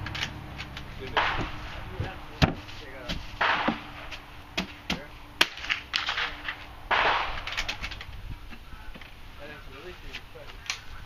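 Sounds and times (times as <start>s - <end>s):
gunshots: 1.1s - 1.8s, 3.4s - 4.1s, 5.4s - 7.8s.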